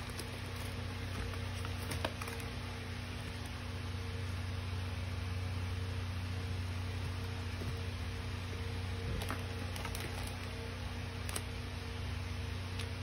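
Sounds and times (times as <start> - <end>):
cellophane packages crackling: 0.0 - 3.6, 9.0 - 11.7
low hum and hiss: 0.0 - 13.0.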